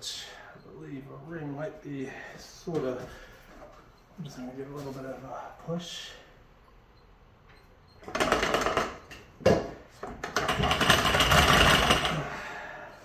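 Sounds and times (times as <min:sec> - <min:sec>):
metal rattling and scraping: 0:10.0 - 0:12.3.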